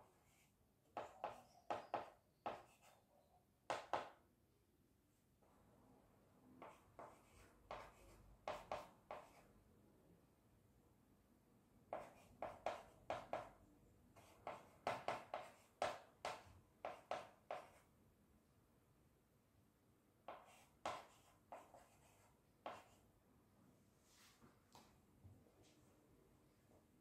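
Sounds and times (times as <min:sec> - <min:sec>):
chalk scratching on blackboard: 0:00.0 - 0:03.0, 0:06.6 - 0:09.4, 0:11.9 - 0:13.5, 0:14.2 - 0:17.8, 0:20.3 - 0:23.0.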